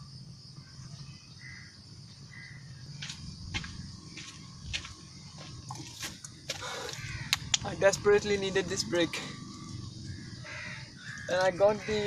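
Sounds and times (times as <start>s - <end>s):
insect drone: 0.0s - 12.0s
footsteps on gravel road: 2.9s - 7.7s.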